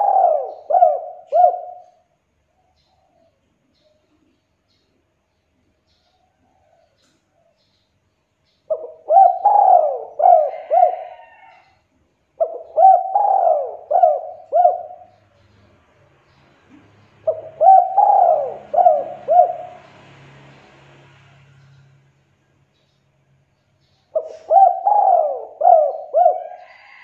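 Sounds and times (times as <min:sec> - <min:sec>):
dove cooing: 0:00.0 - 0:02.1, 0:08.7 - 0:11.8, 0:12.4 - 0:15.5, 0:16.7 - 0:20.0, 0:24.1 - 0:27.0.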